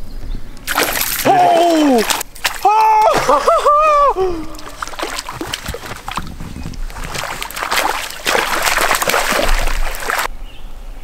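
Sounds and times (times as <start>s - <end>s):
landing net scooping through water: 0.6s - 3.6s, 4.5s - 10.3s
fish thrashing and splashing: 0.6s - 10.3s.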